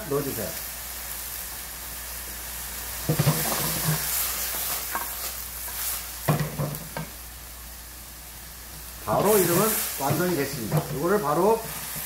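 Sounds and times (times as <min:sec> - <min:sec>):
vegetables sizzling in a wok: 0:00.0 - 0:12.0
wooden spatula knocking on pan: 0:06.3 - 0:07.1.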